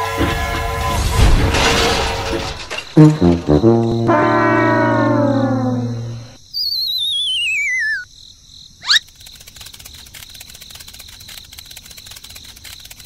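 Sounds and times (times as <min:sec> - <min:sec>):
crickets chirping: 0:02.7 - 0:13.0
warbling whistle sliding down: 0:04.1 - 0:08.0.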